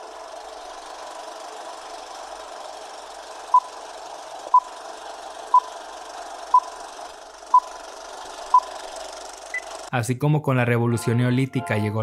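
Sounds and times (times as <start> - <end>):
countdown beeps: 6.5 - 6.7.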